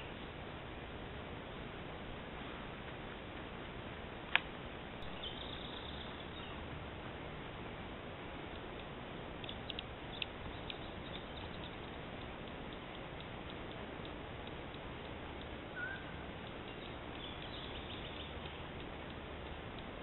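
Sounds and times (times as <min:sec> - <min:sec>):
microphone hiss: 0:00.0 - 0:20.0
small ticks: 0:08.4 - 0:20.0
sharp click: 0:08.5 - 0:14.8.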